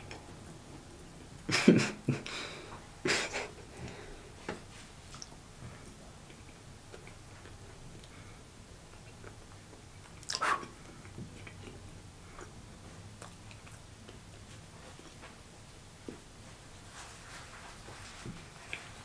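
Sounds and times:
chewing: 6.2s - 8.2s, 8.9s - 14.4s.

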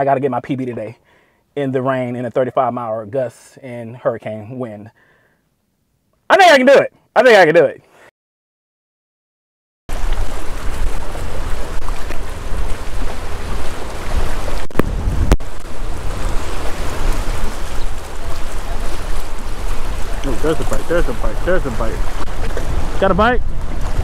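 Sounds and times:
water slapping against rocks: 9.9s - 24.0s
wind buffeting microphone: 9.9s - 24.0s.

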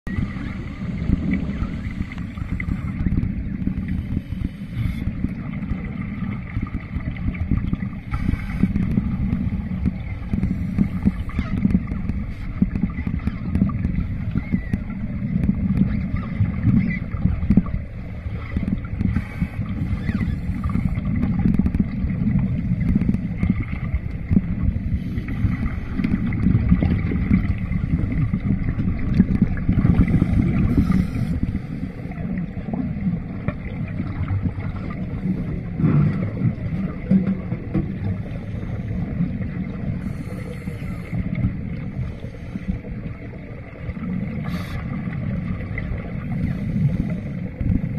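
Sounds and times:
muffled underwater rumble: 0.0s - 47.9s
regulator exhaust bubbles: 0.0s - 47.9s.

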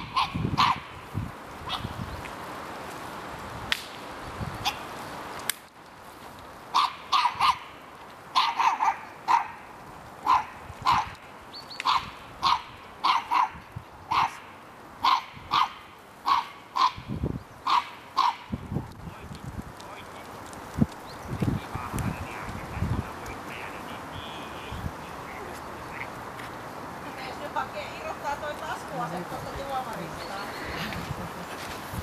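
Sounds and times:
dog barking: 0.0s - 0.9s, 6.7s - 7.7s, 8.4s - 9.6s, 10.2s - 11.1s, 11.8s - 17.0s, 17.7s - 18.5s.

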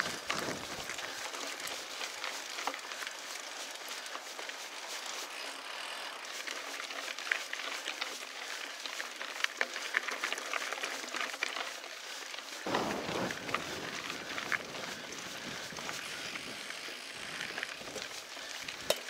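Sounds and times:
bike tyre and air rush: 0.0s - 19.0s
gravel ticks and clatters: 0.0s - 19.0s
deep rush: 12.7s - 16.6s.

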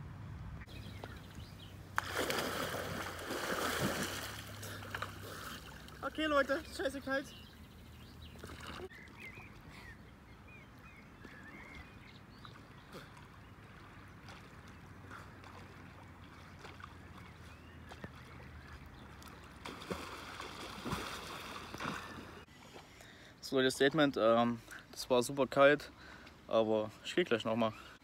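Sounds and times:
lake water lapping: 0.7s - 24.9s
swimmer splashing: 0.9s - 6.7s, 12.6s - 22.5s.

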